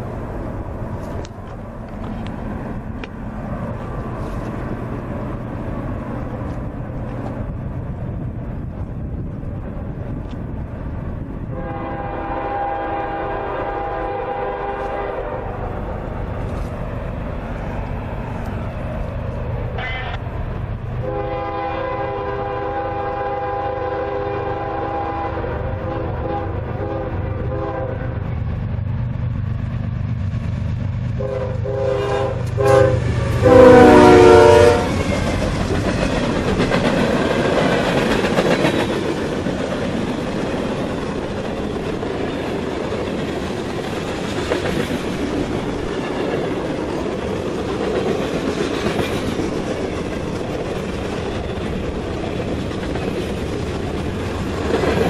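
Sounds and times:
freight cars clickety-clack: 0.0s - 11.6s, 25.4s - 55.0s
locomotive engine rumbling: 0.0s - 55.0s
locomotive horn: 11.5s - 15.6s, 21.0s - 28.2s, 31.2s - 35.0s.

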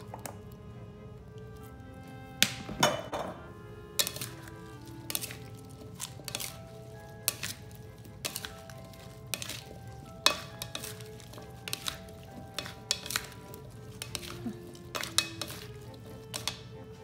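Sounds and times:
salad servers knocking bowl: 2.4s - 17.0s
lettuce rustling: 3.4s - 17.0s.

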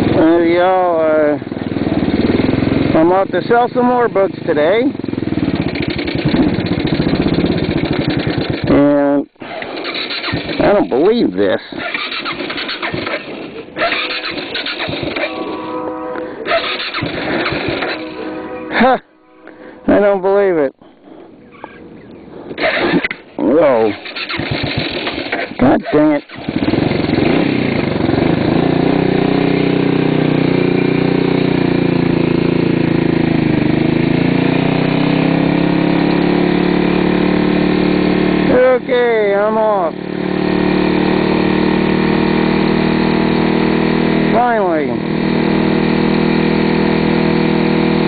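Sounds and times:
motorcycle starter cranking engine: 0.0s - 15.5s, 16.4s - 18.2s, 22.6s - 34.9s.

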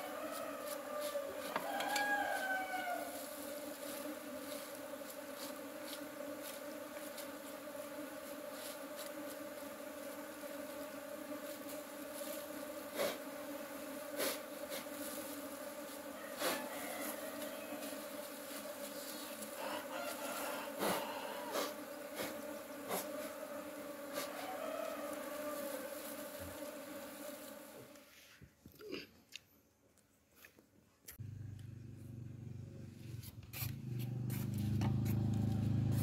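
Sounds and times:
bees buzzing: 0.0s - 28.1s.

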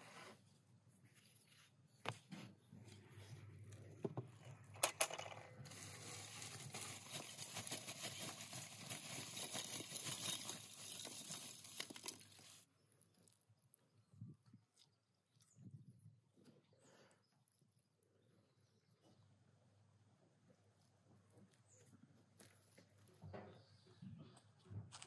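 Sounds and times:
cloth rustling on metal bucket: 5.5s - 12.6s.

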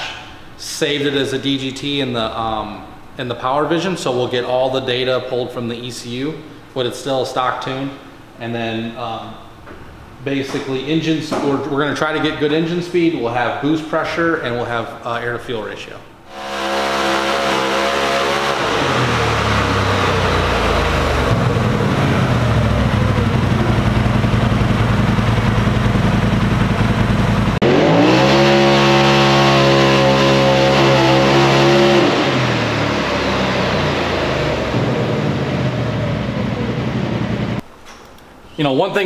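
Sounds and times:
engine revving on dyno: 16.3s - 25.7s, 27.4s - 37.6s.

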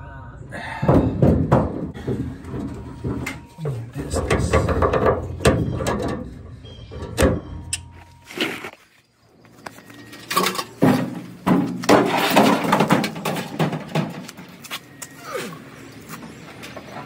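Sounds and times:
sheet metal clunks and rattles: 0.9s - 7.8s, 10.3s - 14.6s.

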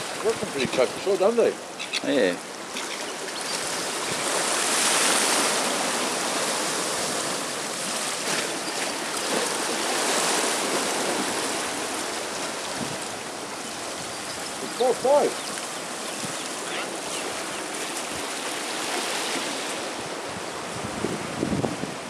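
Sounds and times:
small waves washing over concrete: 0.0s - 22.0s.

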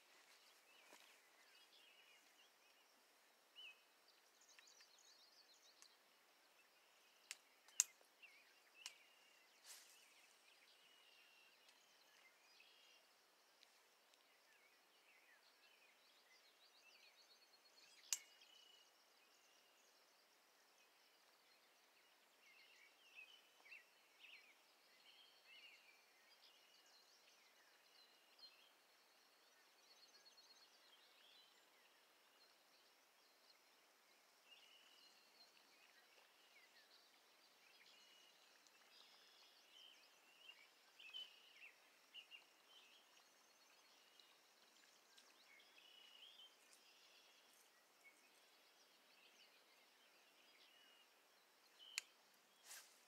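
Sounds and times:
faint birds chirping: 0.0s - 53.0s
sharp clicks: 7.3s - 8.0s.

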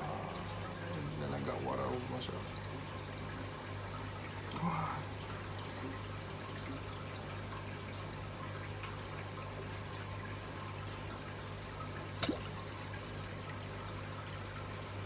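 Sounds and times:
aquarium water trickling: 0.0s - 15.0s
low steady hum: 0.0s - 15.0s.

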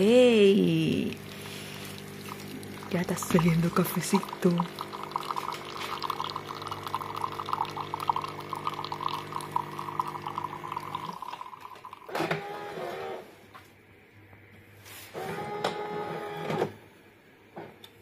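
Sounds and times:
coffee machine pump humming: 0.0s - 13.3s
coffee dribbling into cup: 1.0s - 12.4s.

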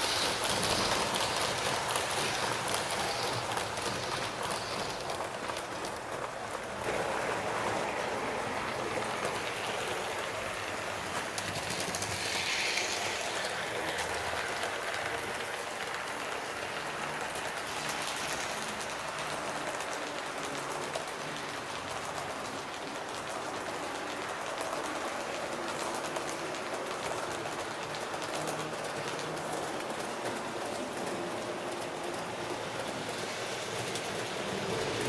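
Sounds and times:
model train wheels rattling on rails: 0.0s - 35.0s.

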